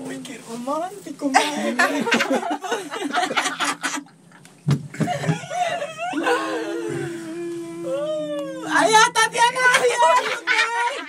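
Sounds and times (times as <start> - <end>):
group of people laughing: 1.4 - 4.2, 5.0 - 7.2, 9.6 - 11.0.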